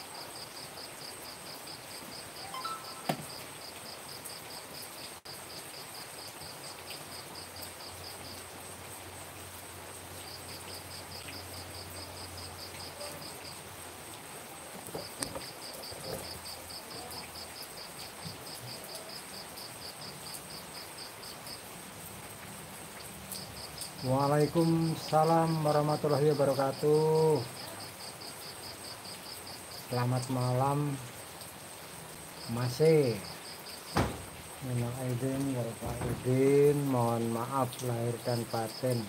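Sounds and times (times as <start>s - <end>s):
cricket chirping: 0.0s - 39.0s
steady rain falling: 0.0s - 39.0s
thin high tone: 2.4s - 3.4s.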